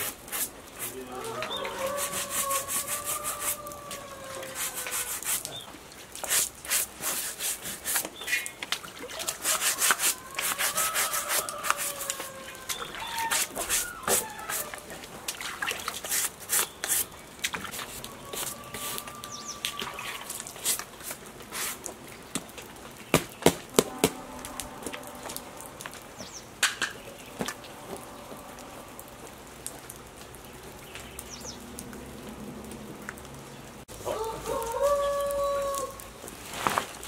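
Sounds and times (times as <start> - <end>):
chicken calling: 0.9 - 5.6, 9.1 - 15.3, 17.7 - 20.6, 27.1 - 29.4, 34.0 - 36.1.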